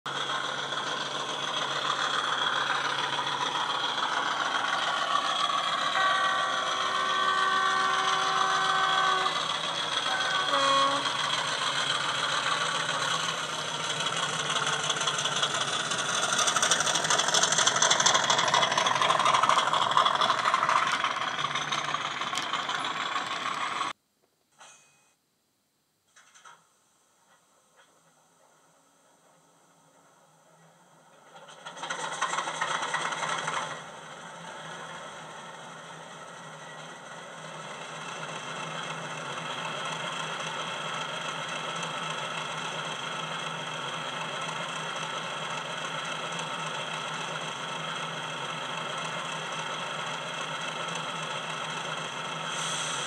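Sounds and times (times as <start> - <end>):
model diesel engine sound: 0.1 - 24.0, 29.2 - 53.0
locomotive horn: 5.7 - 11.6.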